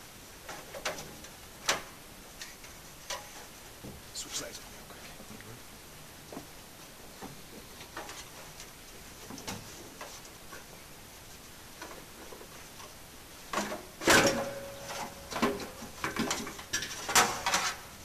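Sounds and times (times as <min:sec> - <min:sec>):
metal clunks and scraping: 0:13.5 - 0:17.9.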